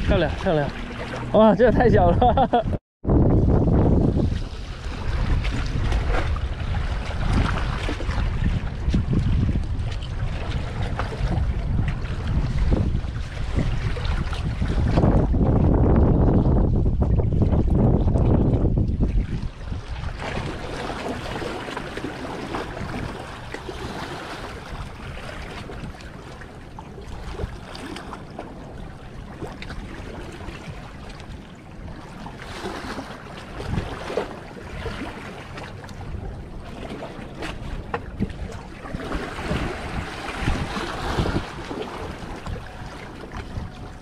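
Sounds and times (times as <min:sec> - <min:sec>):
wind noise on microphone: 0:00.0 - 0:26.4, 0:27.1 - 0:28.4, 0:29.3 - 0:44.0
small waves washing against rocks: 0:19.7 - 0:26.4, 0:36.8 - 0:43.7.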